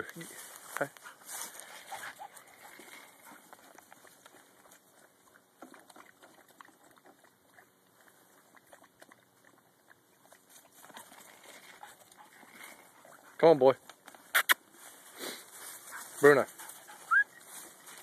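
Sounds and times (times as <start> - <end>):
dogs lapping water: 1.7 - 14.0.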